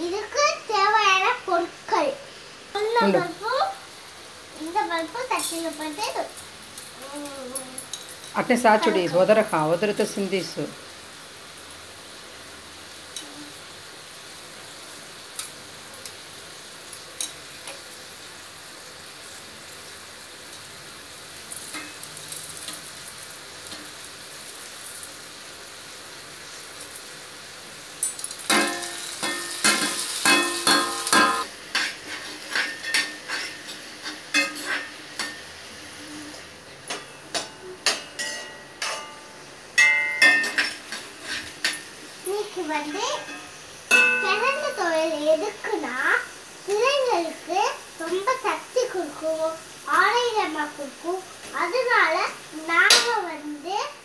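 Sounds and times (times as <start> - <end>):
lentils sizzling in oil: 0.0 - 54.0
steel utensils clattering on pan: 5.3 - 6.2, 28.0 - 35.5, 36.8 - 45.0, 52.8 - 53.2.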